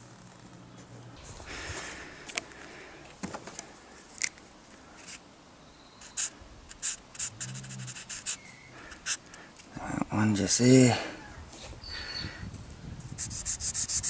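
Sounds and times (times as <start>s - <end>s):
marker pen scratching: 6.0s - 9.3s, 13.2s - 14.0s.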